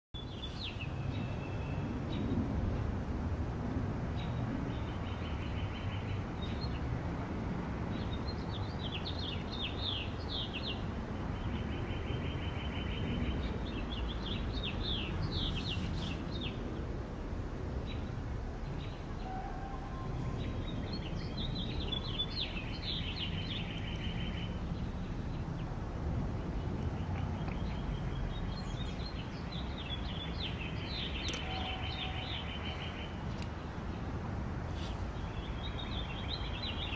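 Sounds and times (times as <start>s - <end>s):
songbird singing trills: 0.2s - 2.3s, 17.9s - 25.7s, 26.5s - 34.1s, 35.2s - 36.9s.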